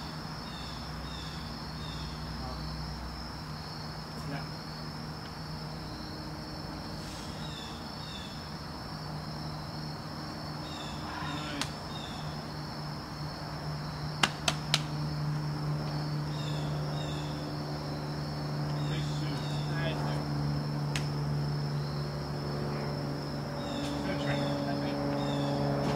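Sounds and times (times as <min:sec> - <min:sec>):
insects droning: 0:00.0 - 0:25.9
short insect chirps: 0:00.0 - 0:25.9
sharp knocks on rock: 0:14.2 - 0:14.9.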